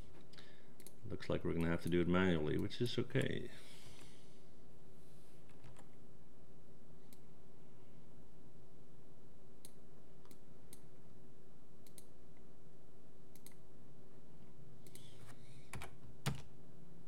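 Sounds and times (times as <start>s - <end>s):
faint steady hum: 0.0s - 17.0s
mouse and keyboard clicks: 14.8s - 15.2s.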